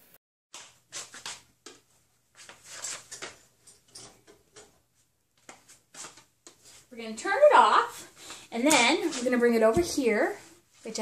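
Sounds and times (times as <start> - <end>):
footsteps on tile floor: 0.5 - 3.5, 8.0 - 11.0.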